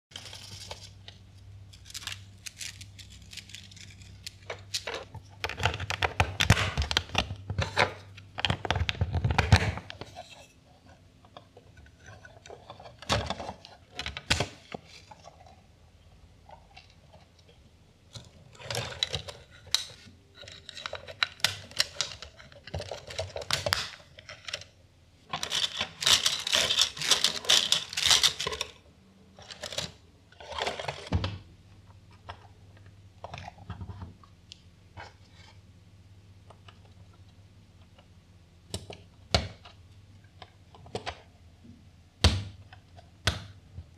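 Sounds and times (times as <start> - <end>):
plastic building pieces clicking: 18.2 - 24.7, 25.4 - 28.8
plastic spring toy rustling: 25.3 - 28.8.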